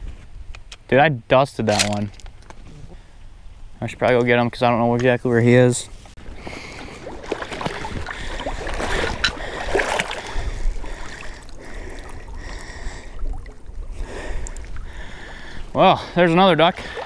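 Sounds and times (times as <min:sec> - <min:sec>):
water sloshing and splashing: 0:06.1 - 0:17.0
water dripping: 0:07.2 - 0:15.6.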